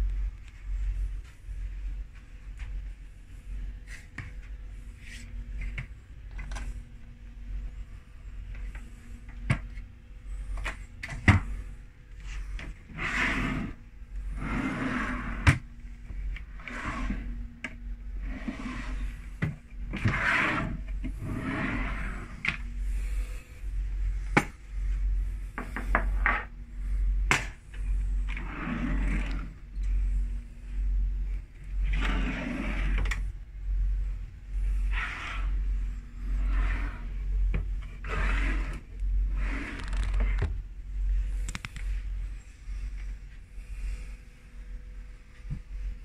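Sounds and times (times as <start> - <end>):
steady low hum: 0.0 - 46.0
drawers sliding: 12.6 - 13.8, 14.4 - 15.6, 16.5 - 17.3, 18.2 - 22.6, 28.3 - 29.6, 31.9 - 33.2, 38.0 - 40.5.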